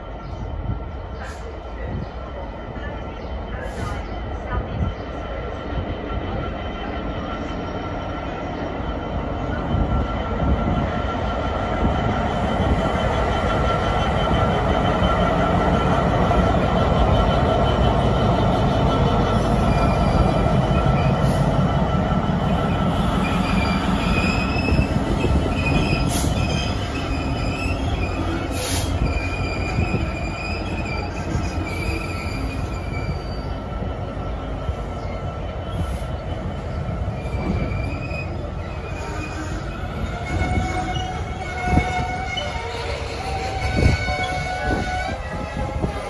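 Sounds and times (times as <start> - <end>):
diesel locomotive engine rumble: 0.0 - 46.0
wagon wheels squealing: 23.0 - 33.6, 35.0 - 45.6.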